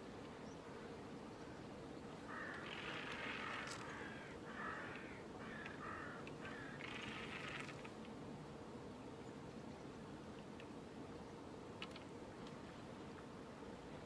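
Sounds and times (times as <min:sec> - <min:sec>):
crow cawing: 0:02.3 - 0:07.6.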